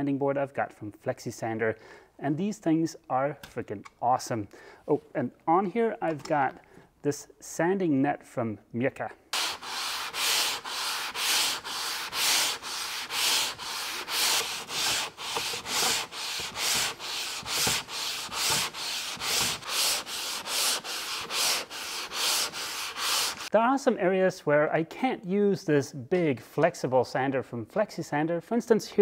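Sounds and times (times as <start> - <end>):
sanding board rasping: 9.4 - 23.5.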